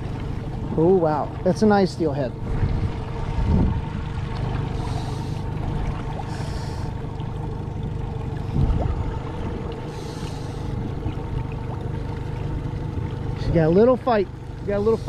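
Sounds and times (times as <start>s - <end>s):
outboard motor running: 0.0s - 15.0s
water and hull noise: 0.0s - 15.0s
hull bump: 2.4s - 4.8s, 7.8s - 12.2s.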